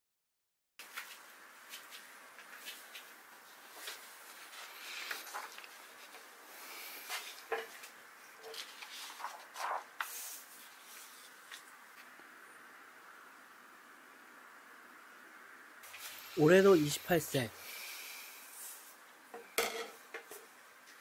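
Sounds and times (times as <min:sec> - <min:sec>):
paper rustling: 0:02.5 - 0:06.3, 0:07.2 - 0:11.7.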